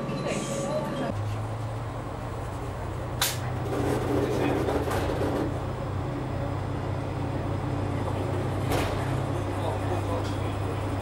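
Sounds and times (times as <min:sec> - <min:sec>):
railcar engine humming: 0:00.0 - 0:11.0
sharp click: 0:03.2 - 0:03.4.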